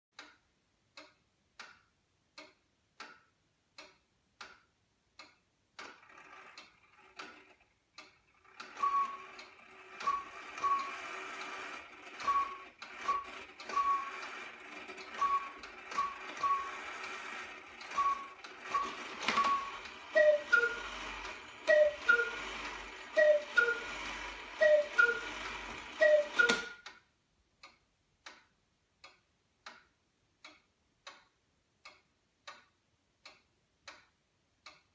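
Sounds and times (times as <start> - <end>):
clock ticking: 0.1 - 34.9
clock striking mechanism: 5.8 - 27.0
cuckoo clock call: 5.9 - 27.0.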